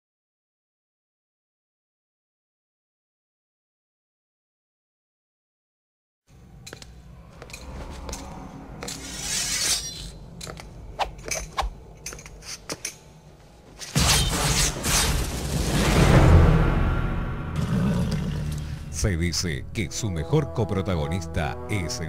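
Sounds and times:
faint low drone: 6.3 - 9.4
dramatic full music: 14.1 - 22.0.

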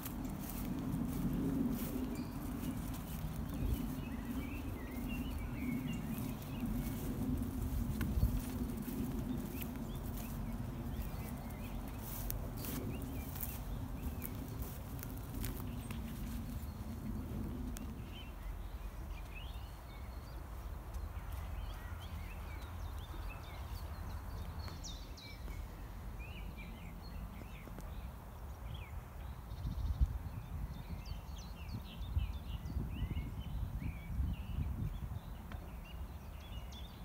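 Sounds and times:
footsteps crunching through dry grass: 0.0 - 28.9
songbirds singing: 0.0 - 37.0.

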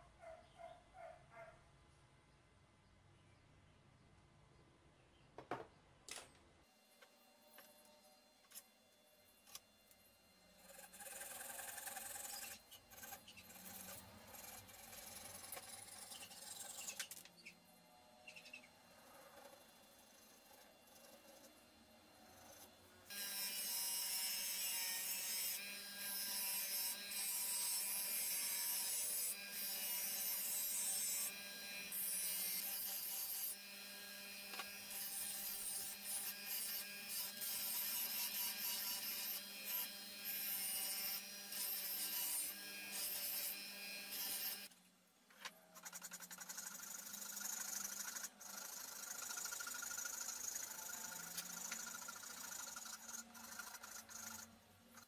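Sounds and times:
file rasping on wood: 10.6 - 17.0, 45.8 - 55.0.

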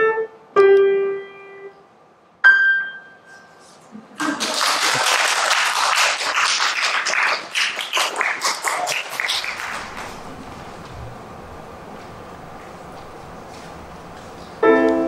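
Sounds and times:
audience applauding: 4.2 - 10.8.

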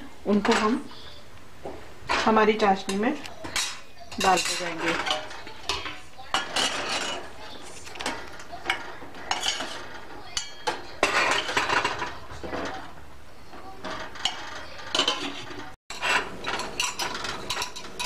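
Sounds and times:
spoon clinking on steel pot: 2.8 - 7.3, 8.0 - 12.1, 13.8 - 18.0.

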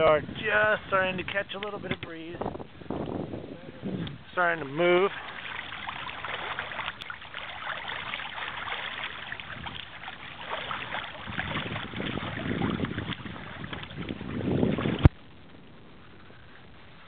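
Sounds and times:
wind gusts on microphone: 0.0 - 17.0
water splashing along hull: 3.8 - 17.0.

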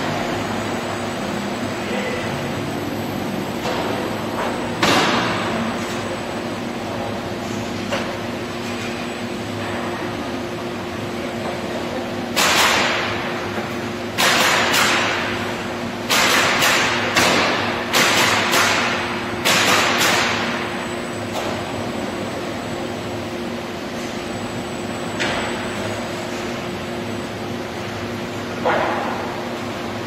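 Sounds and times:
steady machine hum: 0.0 - 30.0
pneumatic nailer shots: 4.8 - 5.6, 12.4 - 13.2, 14.1 - 15.3, 16.0 - 20.8.

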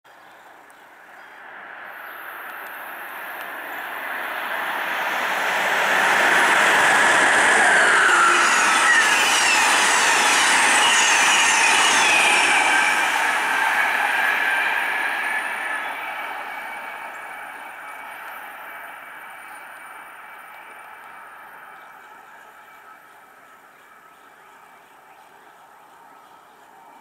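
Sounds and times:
high squeals gliding down: 1.9 - 23.1
train wheels rumbling on rail: 1.9 - 24.7.

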